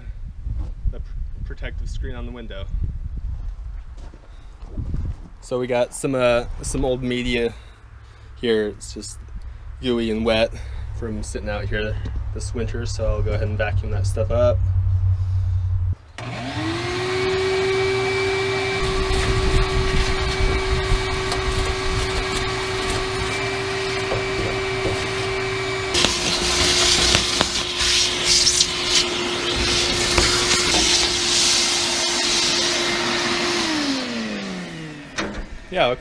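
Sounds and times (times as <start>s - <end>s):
vacuum cleaner running: 16.2s - 35.7s
hiss with crackling: 25.9s - 32.8s.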